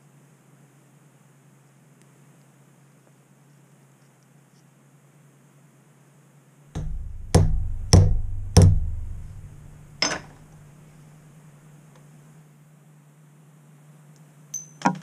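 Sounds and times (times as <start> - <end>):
hammer tapping metal: 6.8 - 10.4.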